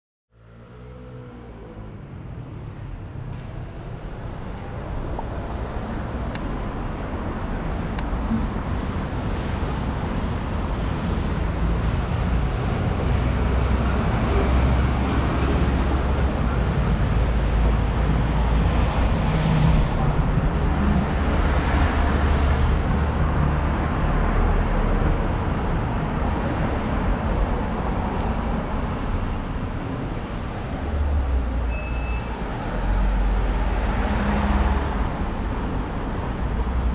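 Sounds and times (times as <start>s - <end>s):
cars driving past: 0.4s - 36.9s.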